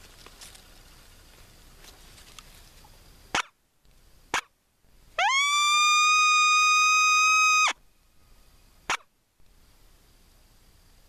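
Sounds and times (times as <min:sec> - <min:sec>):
coyote howler call: 0:05.2 - 0:07.8.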